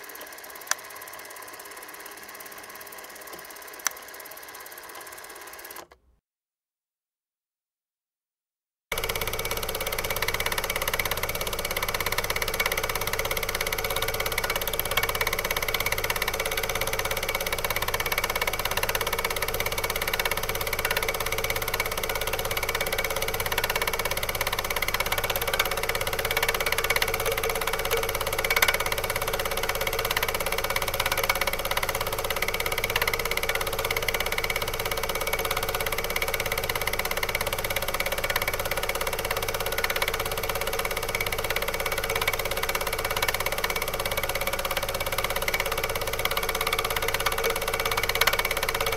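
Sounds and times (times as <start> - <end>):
machine running: 8.9 - 48.9.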